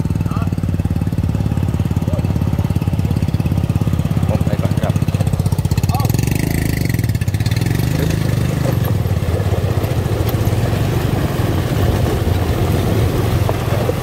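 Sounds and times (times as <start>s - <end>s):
small motorcycle engine: 0.0s - 14.0s
tyre splashing through water: 2.8s - 14.0s.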